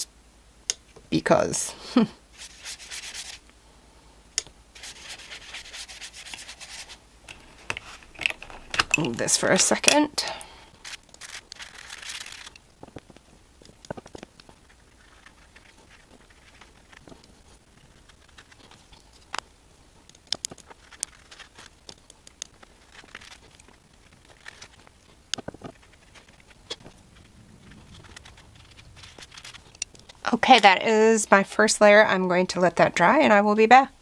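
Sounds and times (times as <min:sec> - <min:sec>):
paintbrush tapping and brushing paper: 0:04.8 - 0:08.0.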